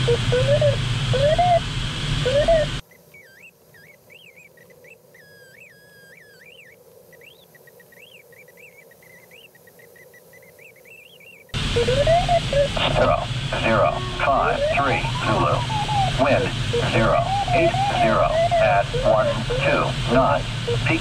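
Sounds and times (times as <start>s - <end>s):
warbling electronic tone: 0.0s - 1.6s, 2.2s - 3.4s, 11.6s - 21.0s
loud cockpit air noise: 0.0s - 2.8s, 11.6s - 21.0s
faint hiss: 0.0s - 21.0s.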